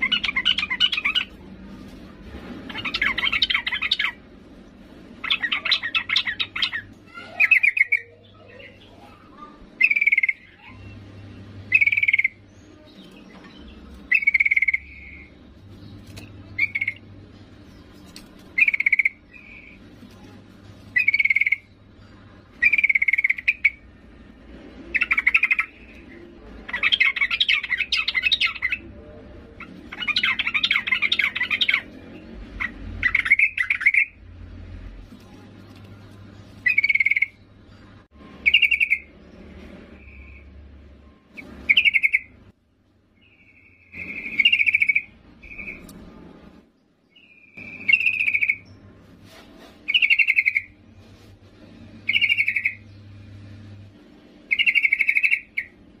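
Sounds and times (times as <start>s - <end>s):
bird chirping: 0.0s - 1.5s, 2.6s - 4.4s, 5.1s - 24.1s, 24.7s - 42.5s, 43.1s - 46.1s, 46.7s - 49.0s, 49.8s - 51.0s, 52.0s - 53.6s, 54.4s - 55.9s
bird rapid chattering: 0.0s - 1.5s, 2.6s - 4.3s, 5.2s - 10.9s, 11.6s - 17.1s, 17.8s - 20.0s, 20.6s - 21.9s, 22.5s - 23.9s, 24.9s - 28.9s, 29.5s - 34.2s, 35.2s - 39.2s, 41.3s - 42.4s, 43.2s - 45.9s, 47.2s - 48.8s, 49.8s - 50.8s, 52.0s - 52.8s, 54.5s - 55.8s.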